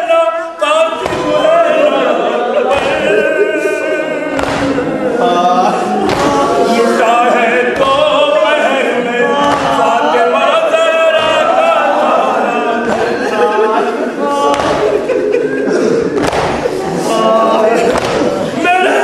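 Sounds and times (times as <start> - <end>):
man singing a lament: 0.0 - 15.0
group of voices singing: 0.0 - 19.0.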